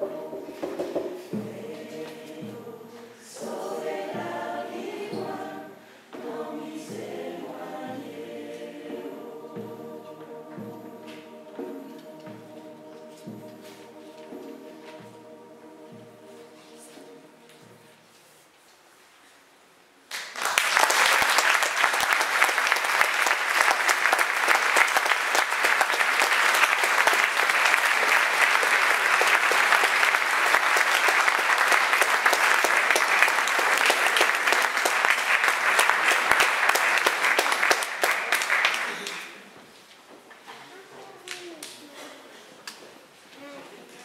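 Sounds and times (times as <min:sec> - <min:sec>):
audience applauding: 0:20.1 - 0:39.4.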